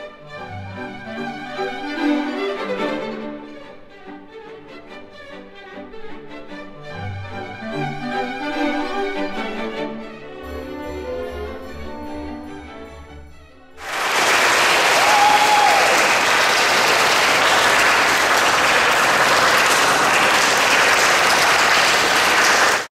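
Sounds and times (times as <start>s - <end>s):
orchestral music: 0.0s - 22.8s
audience applause: 13.8s - 22.9s
person cheering: 14.0s - 16.6s.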